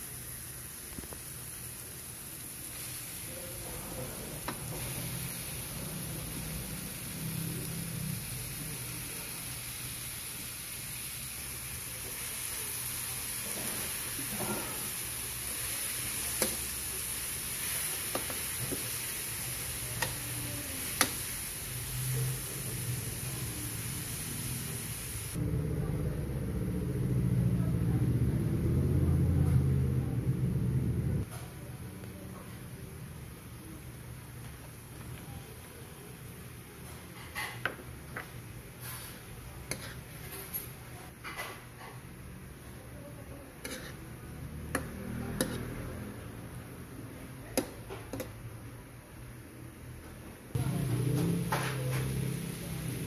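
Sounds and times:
food sizzling in a wok: 0.0s - 25.4s, 32.9s - 48.7s, 50.5s - 53.0s
low humming rumble: 25.3s - 31.2s
metal spatula scraping a wok: 38.8s - 41.4s, 43.6s - 45.8s.

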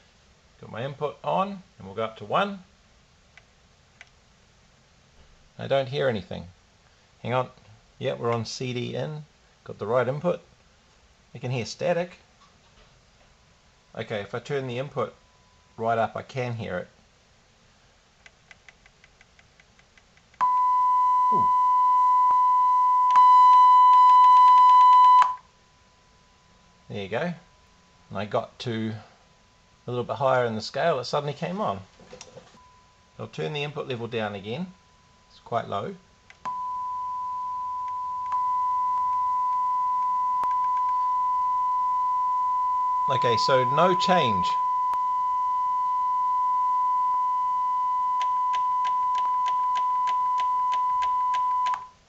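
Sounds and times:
high-pitched test tone: 20.4s - 25.4s
pure test tone: 20.4s - 30.2s, 32.6s - 51.9s.

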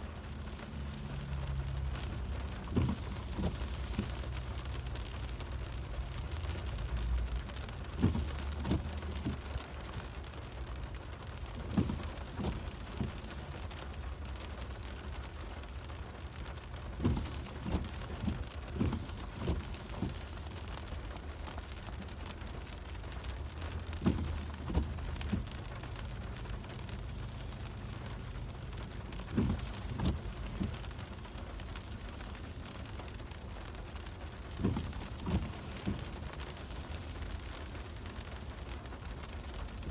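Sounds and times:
car low rumble: 0.0s - 39.9s
rain drumming on car roof: 0.0s - 39.9s.

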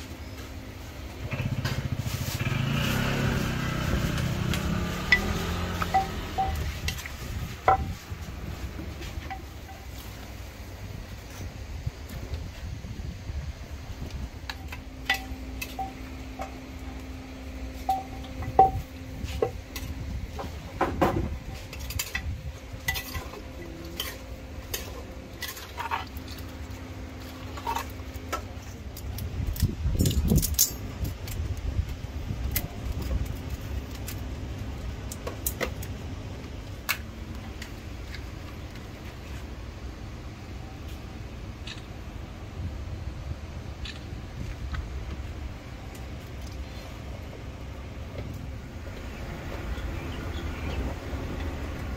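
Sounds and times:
steady low hum: 0.0s - 51.9s
metal utensils clinking on pots: 4.6s - 7.8s, 14.6s - 16.6s, 21.6s - 26.4s.

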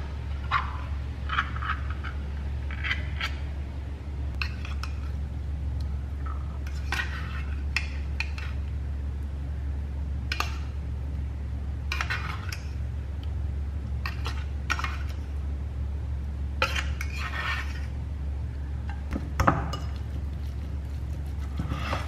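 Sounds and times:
steady low hum: 0.0s - 22.0s
metal spoon scraping a can: 6.6s - 8.6s.

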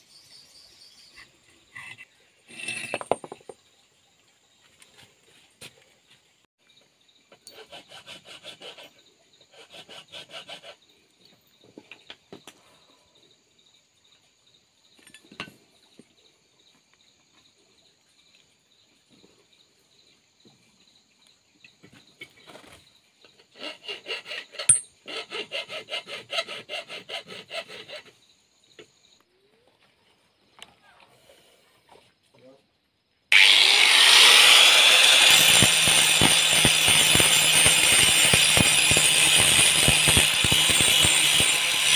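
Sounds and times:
steel being rasped: 1.7s - 3.3s, 7.4s - 10.8s, 23.5s - 28.1s, 33.3s - 41.9s.

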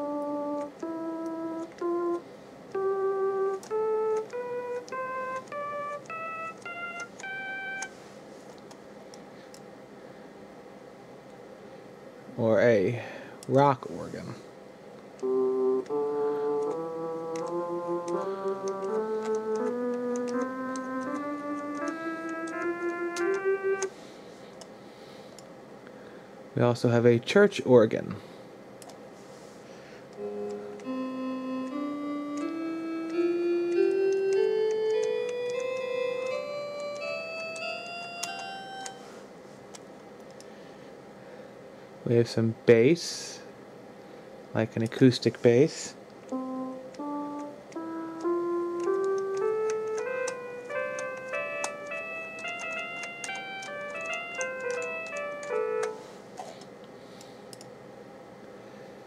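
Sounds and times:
computer keys clicking: 0.0s - 7.9s, 15.2s - 23.9s, 31.6s - 39.0s, 46.2s - 56.6s, 57.5s - 57.7s
synthesized church organ notes: 0.0s - 8.0s, 15.2s - 24.1s, 30.1s - 39.2s, 46.2s - 56.1s.

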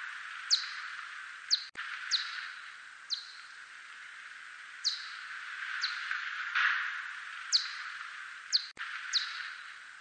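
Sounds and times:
steady hiss: 0.0s - 10.0s
bat chirps sweeping downward: 0.5s - 3.6s, 7.5s - 7.9s, 8.5s - 9.7s.

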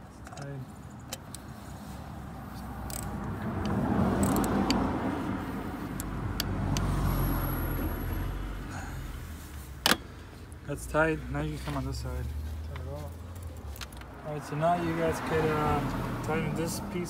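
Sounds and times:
vehicle passing close by: 1.8s - 9.4s, 11.1s - 17.0s.

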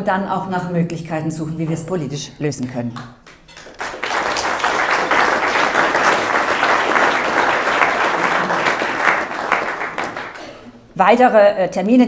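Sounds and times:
audience applauding: 3.3s - 10.7s.

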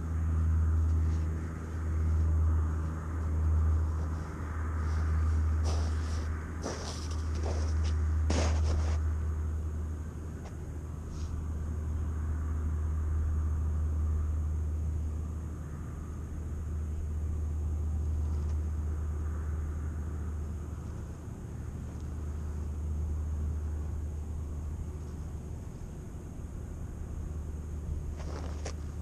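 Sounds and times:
low rumble: 0.0s - 10.8s.

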